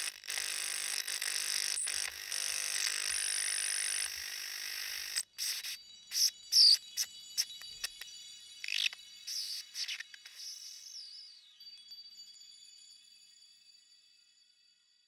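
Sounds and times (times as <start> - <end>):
sharp electronic clicks: 0.0 - 11.0
steady hiss with high tones: 8.6 - 11.8.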